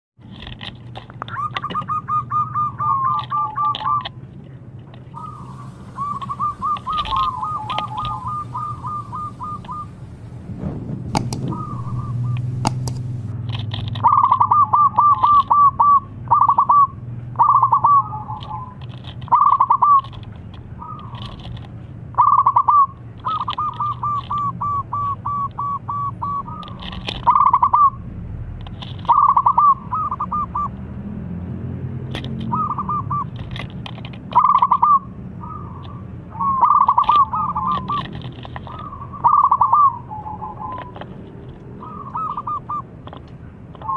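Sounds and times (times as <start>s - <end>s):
dove cooing: 1.3s - 4.2s, 5.1s - 10.4s, 11.2s - 13.3s, 14.0s - 20.2s, 22.2s - 28.0s, 29.0s - 30.8s, 32.4s - 33.4s, 34.3s - 41.2s, 41.8s - 43.9s
steady low hum: 4.2s - 13.5s.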